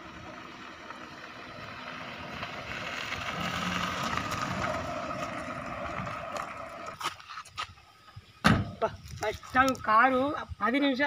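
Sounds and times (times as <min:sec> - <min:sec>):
car engine driving past: 0:00.0 - 0:07.0
tyres on dirt road: 0:00.0 - 0:11.0.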